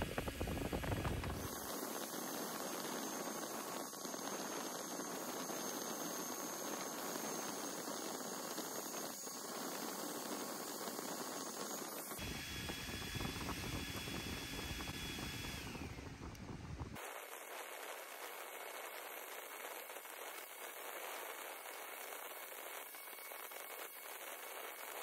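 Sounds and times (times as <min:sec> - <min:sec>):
laser engraver fan hiss: 0:00.0 - 0:19.7
faint high whine: 0:00.0 - 0:25.0.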